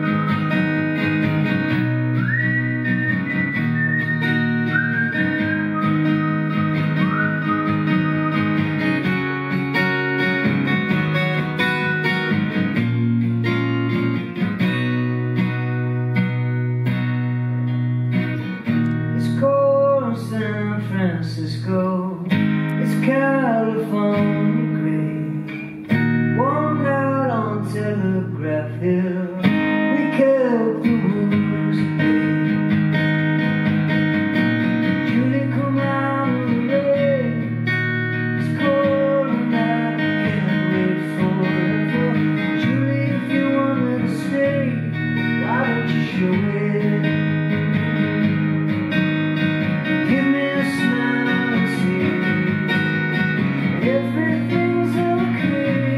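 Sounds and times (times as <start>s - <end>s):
acoustic guitar strumming chords: 0.0s - 55.9s
man singing: 19.0s - 25.6s, 26.3s - 32.6s, 35.0s - 37.7s, 38.3s - 48.2s, 49.9s - 53.0s, 53.7s - 55.9s.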